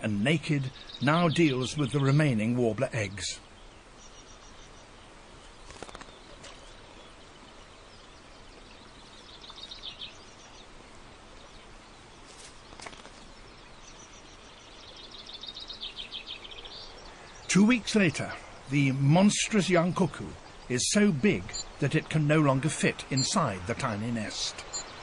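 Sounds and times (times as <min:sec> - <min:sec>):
songbird chattering song: 0:00.0 - 0:25.0
faint clicks: 0:05.6 - 0:06.8.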